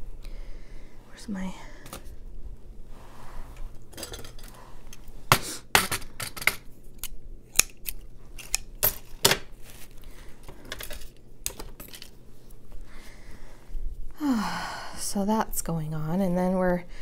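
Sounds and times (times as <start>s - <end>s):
rustling of supplies: 8.0s - 13.5s.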